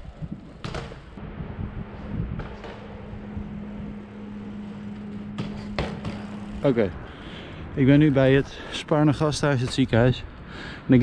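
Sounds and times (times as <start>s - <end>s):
wind rumbling on microphone: 0.0s - 8.4s
steady low hum: 0.0s - 8.8s
traffic noise: 0.0s - 11.0s.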